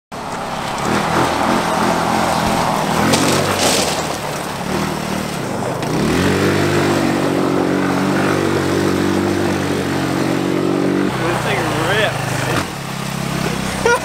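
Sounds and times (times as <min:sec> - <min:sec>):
go-kart engine revving: 0:00.1 - 0:14.0.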